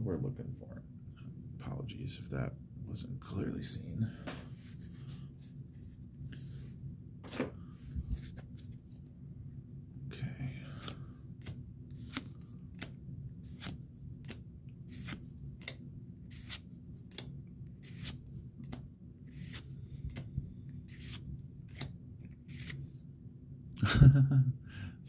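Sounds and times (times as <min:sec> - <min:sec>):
trading cards swishing: 0:07.3 - 0:09.0, 0:10.7 - 0:23.0.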